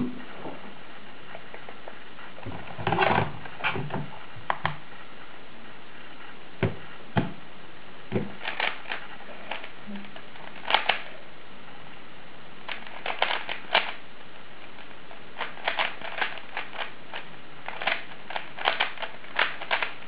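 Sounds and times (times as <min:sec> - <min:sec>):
cube knocking on table: 0:08.1 - 0:08.4
puzzle cube clicking: 0:08.2 - 0:11.1, 0:12.7 - 0:14.0, 0:15.4 - 0:20.0.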